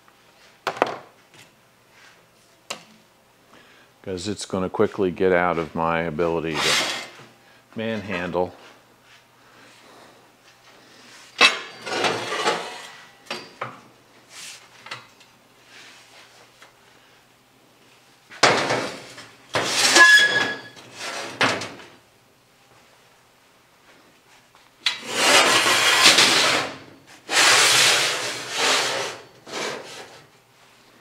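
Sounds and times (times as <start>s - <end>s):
metal sliding scrapes: 6.5s - 7.2s, 11.4s - 13.1s, 19.6s - 21.4s, 24.9s - 30.2s.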